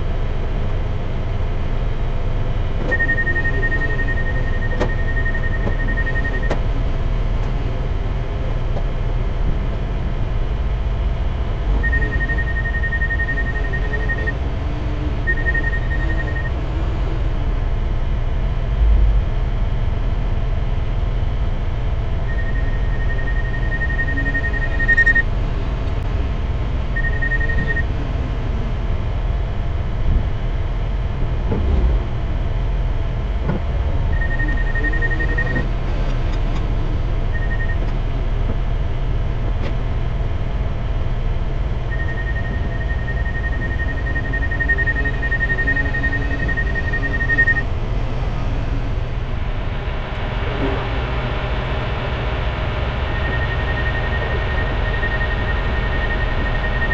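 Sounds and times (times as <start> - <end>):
heavy diesel engines rumbling: 0.0 - 56.9
high electronic beeping tone: 2.8 - 6.6, 11.7 - 16.6, 22.2 - 25.3, 26.9 - 28.0, 34.1 - 35.7, 37.2 - 37.9, 41.8 - 47.7, 52.9 - 56.9.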